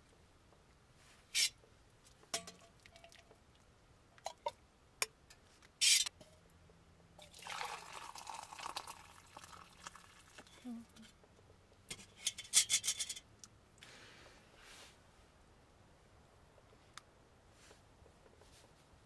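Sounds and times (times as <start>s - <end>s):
metal ladle clinking against pot: 2.4s - 3.1s
soup splashing and dripping: 7.2s - 10.5s.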